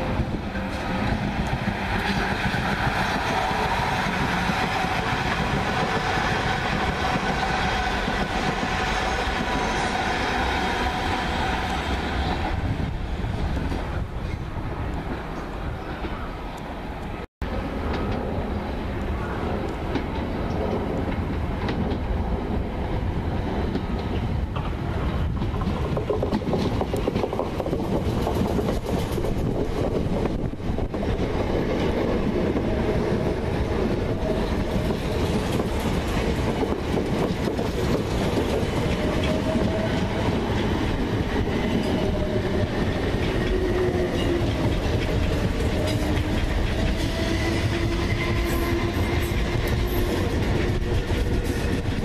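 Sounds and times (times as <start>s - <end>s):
train traction whine: 0.0s - 28.5s, 29.2s - 52.0s
train rumbling: 0.0s - 52.0s
wheels clacking over rail joints: 23.7s - 52.0s.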